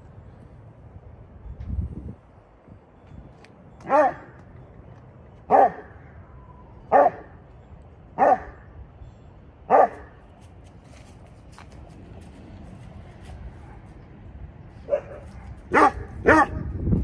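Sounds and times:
dog barking: 3.8s - 4.3s, 5.5s - 5.9s, 6.9s - 7.3s, 8.2s - 8.6s, 9.7s - 10.1s, 14.8s - 16.7s.

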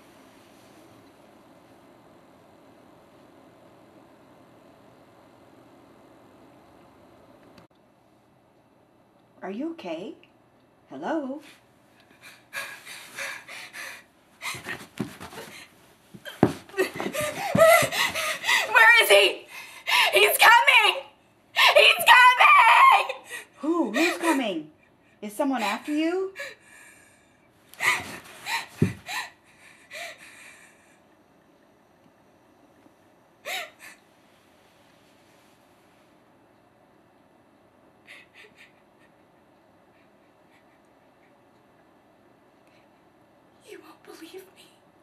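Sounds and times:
woman panting and gasping: 12.1s - 18.8s, 19.4s - 20.3s, 23.1s - 24.6s, 27.8s - 30.8s, 33.4s - 34.0s, 38.0s - 39.2s.

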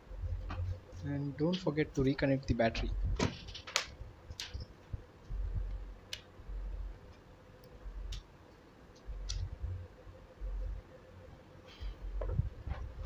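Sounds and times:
low handling bumps: 12.1s - 13.0s.

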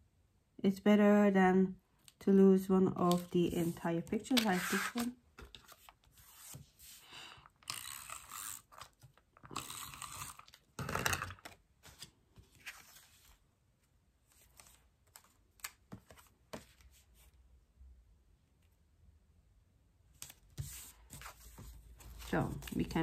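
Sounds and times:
paper rustling and sliding: 3.1s - 7.1s, 11.8s - 13.4s.

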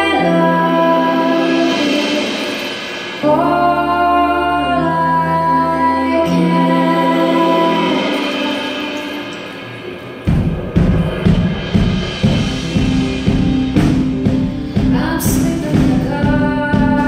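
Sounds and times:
women singing in harmony: 0.0s - 9.5s.

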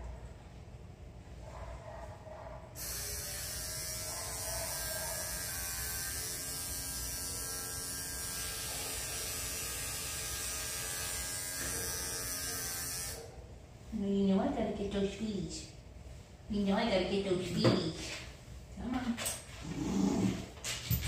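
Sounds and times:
electric pet clipper buzzing: 2.8s - 13.3s.

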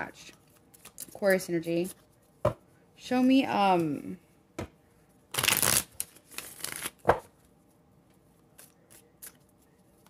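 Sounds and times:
cards shuffling: 5.3s - 7.3s, 8.4s - 10.0s.

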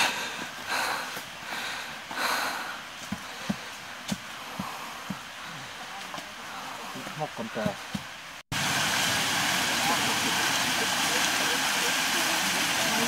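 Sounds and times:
footsteps on leafy dirt trail: 0.0s - 5.2s.

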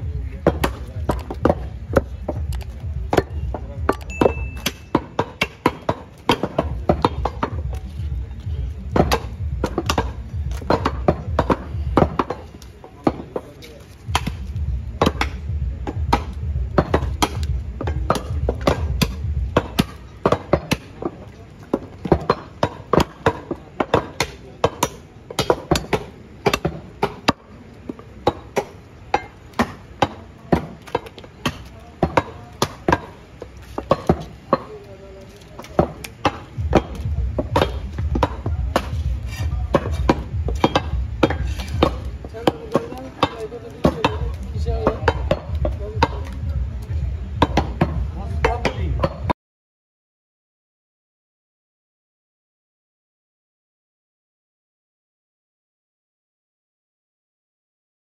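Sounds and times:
cleavers chopping on wooden blocks: 0.0s - 49.3s.

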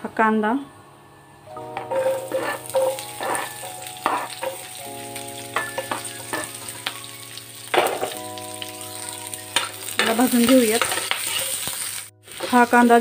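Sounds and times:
onion sizzling in oil: 1.6s - 13.0s
pieces landing in pan: 5.5s - 8.5s, 9.1s - 12.6s
chopping board knocking pan: 5.6s - 6.6s, 7.7s - 8.3s.

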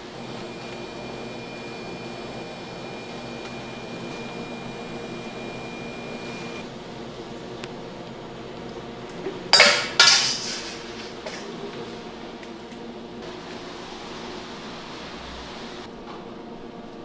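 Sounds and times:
kitchenware clattering knocks: 9.5s - 11.5s.

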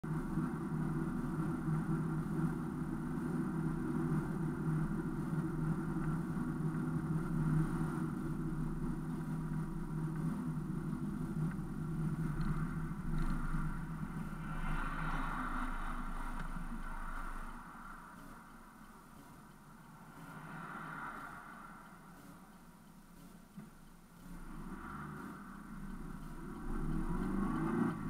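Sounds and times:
car engine hum: 0.0s - 28.0s
road noise: 0.0s - 28.0s.

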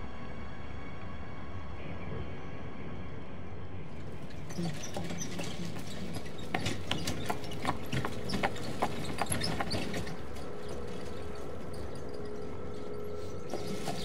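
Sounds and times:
steady background hum: 0.0s - 14.0s
horse hooves clip-clopping: 4.0s - 14.0s.

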